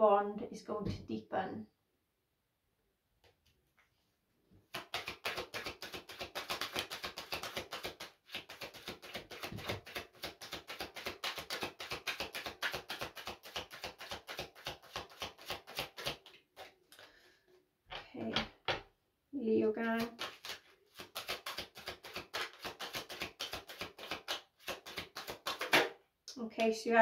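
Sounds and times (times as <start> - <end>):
cards being shuffled: 4.7 - 17.1, 20.0 - 25.9.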